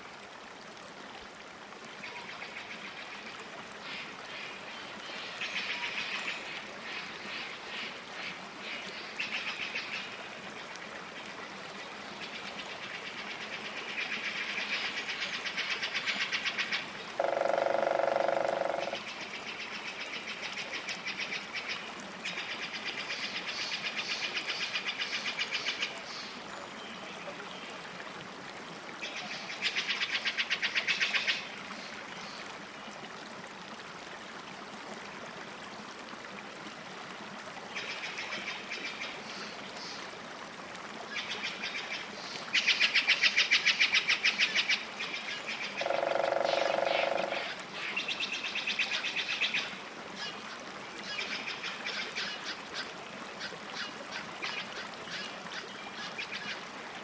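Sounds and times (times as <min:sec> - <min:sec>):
low tonal animal call: 0:17.2 - 0:19.0, 0:45.8 - 0:47.6.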